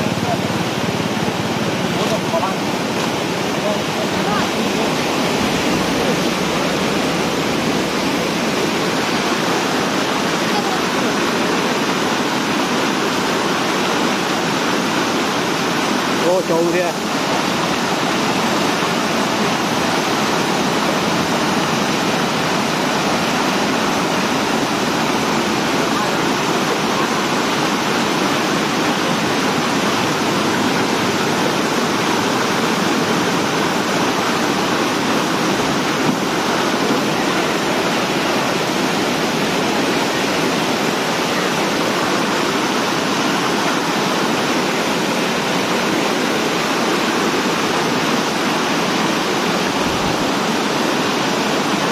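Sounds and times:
floodwater rushing over spillway: 0.0 - 51.9.

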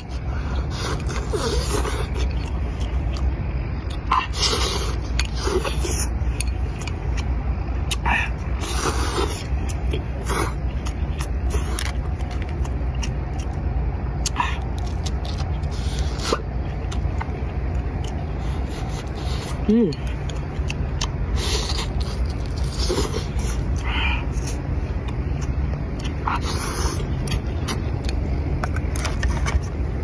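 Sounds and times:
steady low rumble: 0.0 - 30.0.

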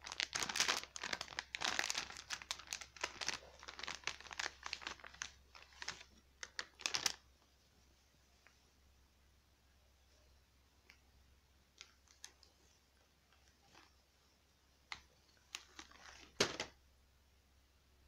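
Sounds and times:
plastic bag crinkling: 0.0 - 7.2, 11.8 - 12.5, 14.9 - 16.8.

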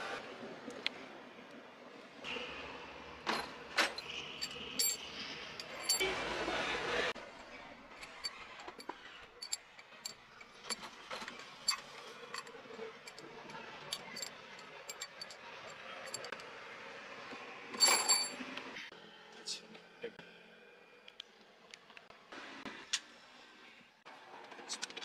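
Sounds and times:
metal pushrods clinking: 3.8 - 6.0, 7.4 - 16.4, 17.8 - 18.4
metal rattle: 3.8 - 6.0, 7.4 - 16.4.

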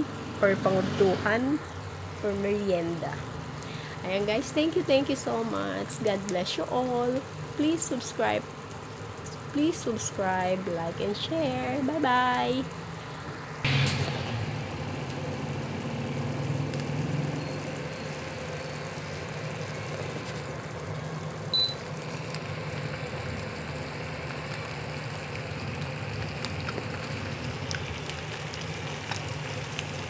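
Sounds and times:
cooling fan hum: 0.0 - 30.0
food sizzling in a frying pan: 0.2 - 30.0
short high beep: 21.5 - 21.8.

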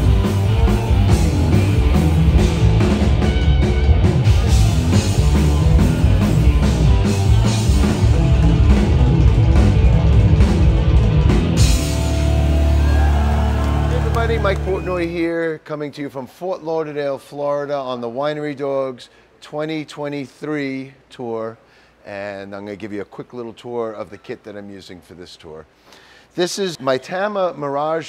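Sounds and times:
drum kit: 0.0 - 15.1
rock band playing: 0.0 - 15.1.

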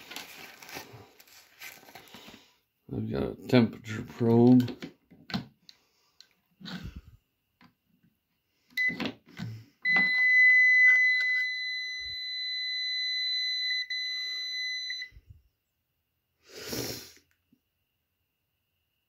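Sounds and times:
meter buzzer beeping: 9.8 - 15.1.

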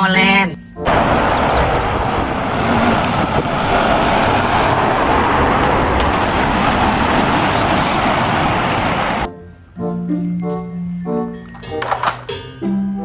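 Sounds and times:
road noise: 0.8 - 9.3
truck diesel engine running: 0.9 - 9.3.

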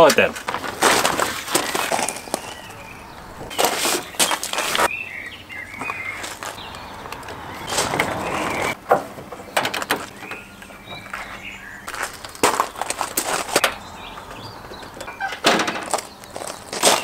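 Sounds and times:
plastic tarpaulin rustling: 0.0 - 4.9, 11.2 - 13.6, 15.4 - 17.0
birds chirping faintly: 1.1 - 17.0.

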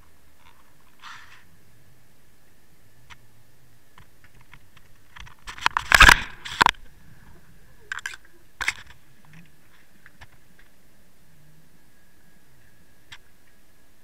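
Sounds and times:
underwater crackling clicks: 4.0 - 6.9.

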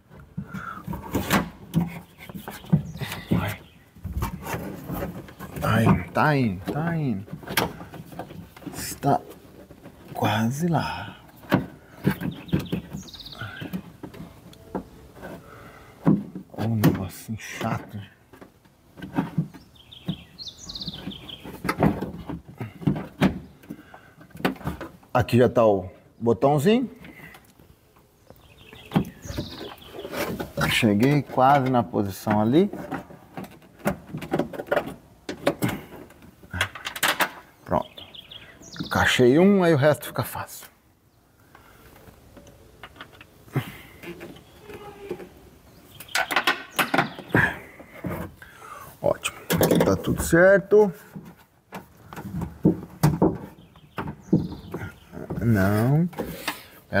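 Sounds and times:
bird chirping: 0.5 - 9.4, 10.1 - 15.8, 19.2 - 24.8, 25.6 - 33.0, 35.6 - 50.9, 52.0 - 57.0
clattering and rattling clicks: 31.0 - 37.5.

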